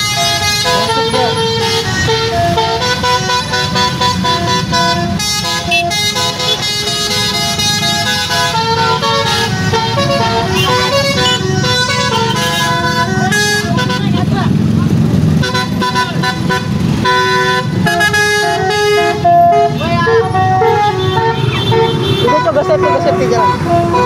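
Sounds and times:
multi-tone bus horn tune: 0.0 - 14.4, 15.4 - 24.0
traffic rumble: 0.0 - 24.0.

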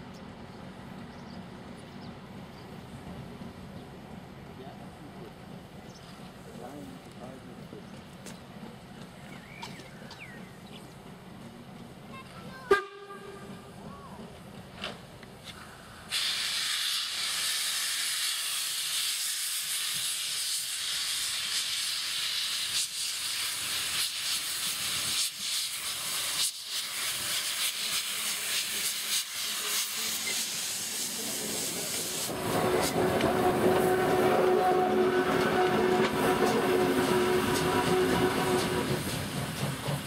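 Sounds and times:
steam locomotive hissing steam: 13.5 - 40.0
locomotive wheels rumbling: 30.9 - 40.0.

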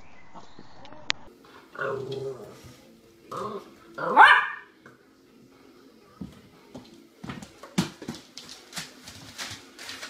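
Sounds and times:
puppy barking: 4.0 - 4.7
paws tapping on floor: 6.2 - 10.0.

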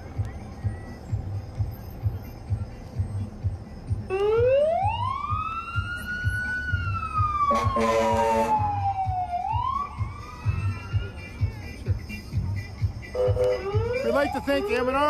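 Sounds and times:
low thumping bass beat: 0.0 - 15.0
siren wailing: 4.1 - 11.2, 13.5 - 14.7
horn blast: 7.5 - 8.8, 13.1 - 14.0.

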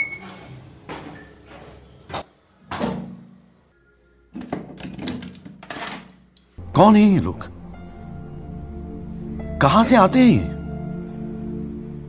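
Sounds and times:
quiet background music: 0.0 - 12.0
clicks and rattles: 4.4 - 6.6.

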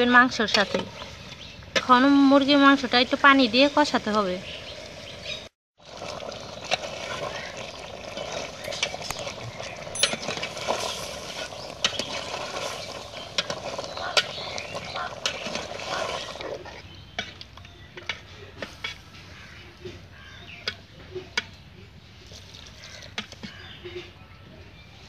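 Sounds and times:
metal spatula stirring in pot: 6.6 - 17.3.

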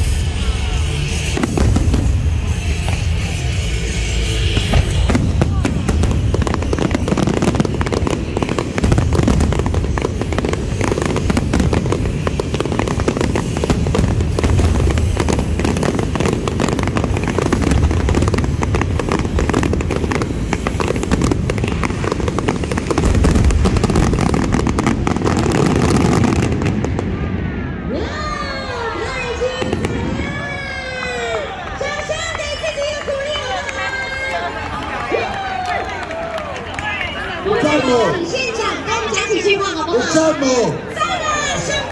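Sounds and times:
fireworks bursting: 0.0 - 31.2.

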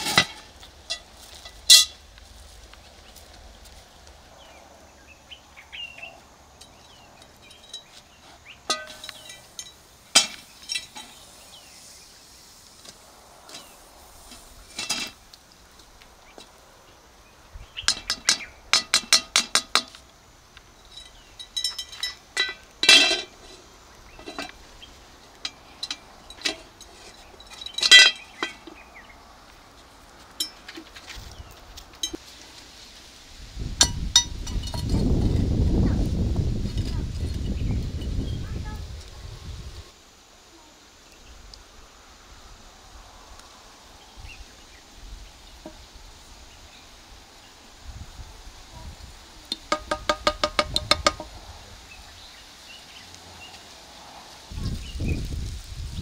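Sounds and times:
wooden spoon knocking iron pot: 49.6 - 51.3.

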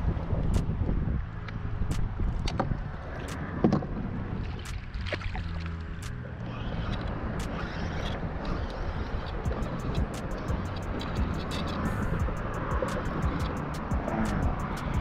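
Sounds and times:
water lapping against kayak: 0.0 - 15.0
wind on microphone: 0.0 - 15.0
fishing gear clicks: 4.5 - 15.0.

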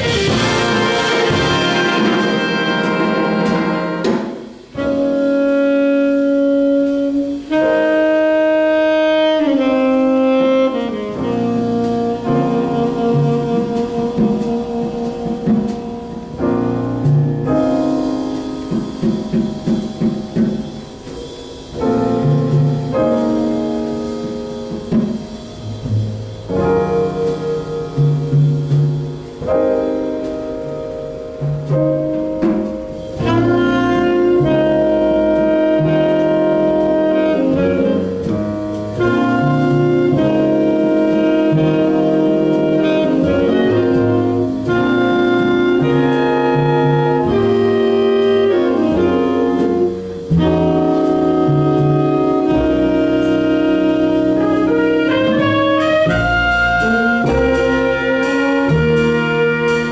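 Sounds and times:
saxophones: 0.0 - 4.2, 4.8 - 19.0, 33.0 - 59.9
bass line: 0.0 - 59.9
jazz big band playing: 0.0 - 59.9.

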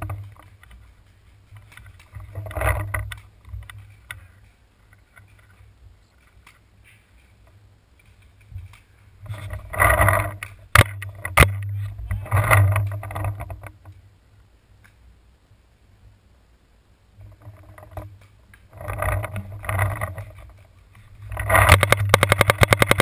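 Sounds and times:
rustling: 0.0 - 15.2, 17.1 - 23.0
wind noise on microphone: 8.2 - 14.0.

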